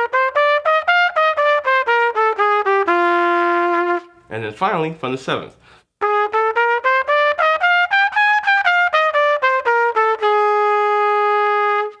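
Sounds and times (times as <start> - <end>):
trumpet playing a scale: 0.0 - 4.3, 6.0 - 12.0.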